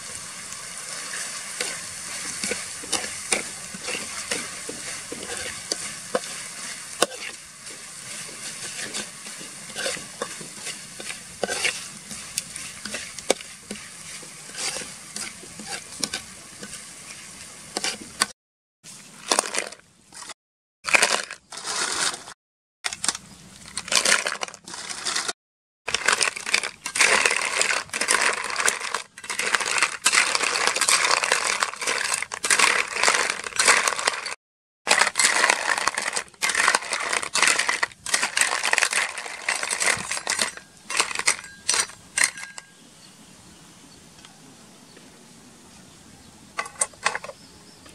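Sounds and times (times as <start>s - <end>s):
metal spoon scraping wok: 0.0s - 18.3s, 25.9s - 42.8s
chilies sizzling in oil: 0.0s - 22.1s, 25.9s - 44.1s
snail shells clattering in wok: 0.2s - 18.2s, 25.9s - 42.6s.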